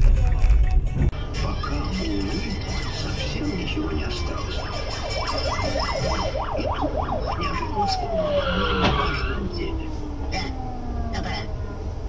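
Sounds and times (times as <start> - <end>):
police siren yelping and wailing: 1.5 - 12.0
car crash: 4.5 - 10.6.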